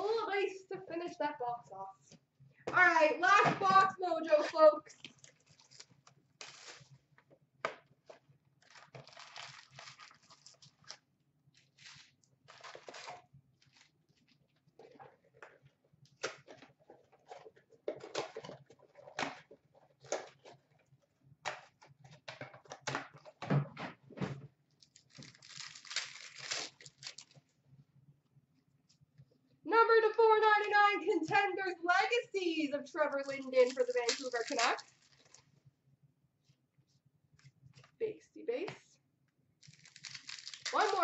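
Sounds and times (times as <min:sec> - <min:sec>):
foil wrappers crinkling and tearing: 0:05.2 - 0:07.0, 0:08.6 - 0:11.0, 0:11.6 - 0:13.9, 0:24.8 - 0:27.4, 0:33.1 - 0:35.5, 0:39.6 - 0:41.0.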